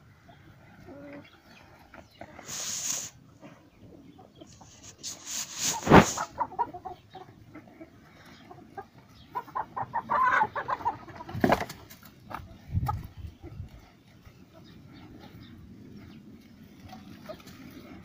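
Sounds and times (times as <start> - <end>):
chickens clucking: 0.0 - 18.0
bursts of hissing noise: 2.4 - 3.2, 4.5 - 6.4.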